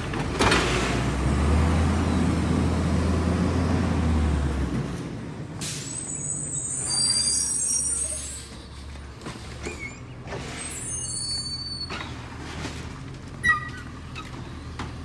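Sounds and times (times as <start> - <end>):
truck engine rumbling: 0.0 - 15.0
air brake hisses: 5.6 - 6.5
air brake squeals: 5.6 - 8.8, 9.6 - 12.2.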